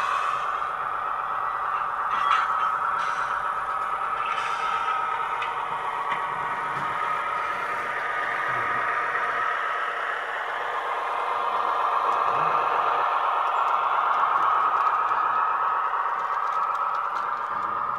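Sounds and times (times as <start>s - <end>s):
diesel engine drone from loudspeaker: 0.0s - 17.9s.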